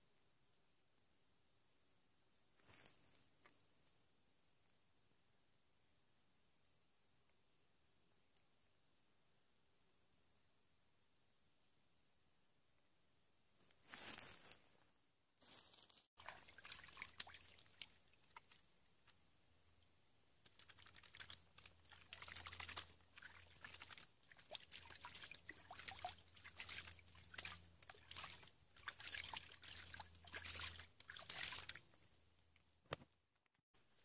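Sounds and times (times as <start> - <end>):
creek water splashing and trickling: 15.4 - 19.8, 20.4 - 32.1
hand swishing water: 16.2 - 18.6, 20.4 - 32.0.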